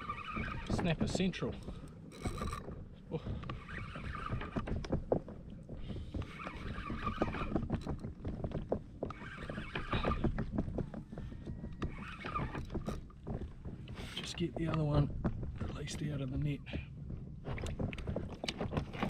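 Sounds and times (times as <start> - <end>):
fishing reel whirring: 0.0 - 0.9, 2.1 - 2.7, 11.8 - 13.0.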